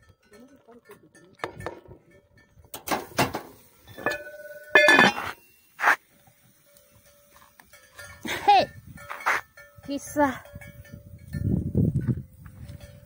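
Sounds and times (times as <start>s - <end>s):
metal cookware clanking: 2.8s - 5.5s.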